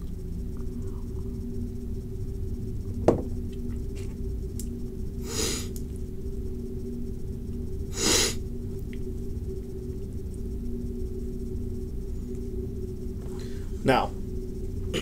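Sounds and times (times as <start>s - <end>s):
electrical hum: 0.0s - 15.0s
short breaths near microphone: 5.2s - 5.7s.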